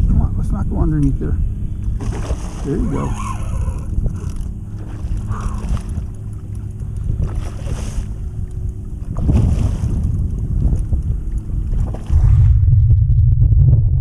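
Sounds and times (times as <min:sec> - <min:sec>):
wind buffeting microphone: 0:00.0 - 0:14.0
fish splashing in water: 0:01.9 - 0:12.2.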